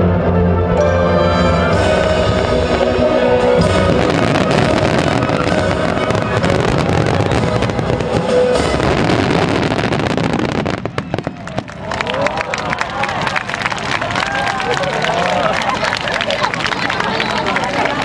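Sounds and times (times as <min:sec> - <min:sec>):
music playing: 0:00.0 - 0:11.9
fireworks bursting: 0:03.6 - 0:11.9
dense crackle of fireworks: 0:03.6 - 0:14.7.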